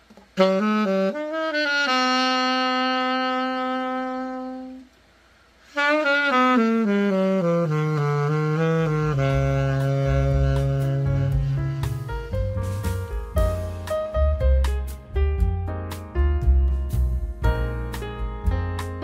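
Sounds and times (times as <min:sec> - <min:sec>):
alto saxophone playing runs: 0:00.2 - 0:15.2.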